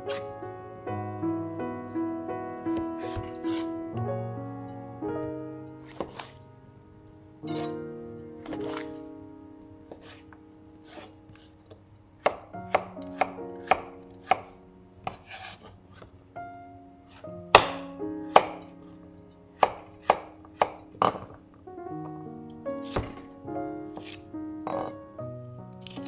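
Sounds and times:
knife chopping on cutting board: 3.0 - 3.6, 5.9 - 6.3, 8.4 - 8.9, 15.1 - 15.6, 17.6 - 18.6, 19.6 - 21.3, 22.8 - 23.2, 24.0 - 24.9.

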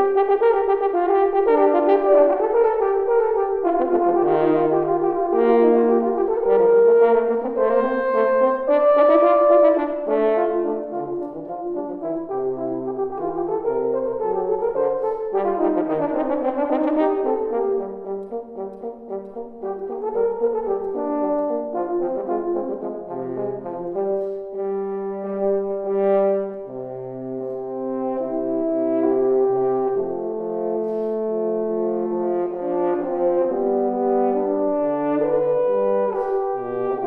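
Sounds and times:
french horns duet: 0.0 - 37.0.

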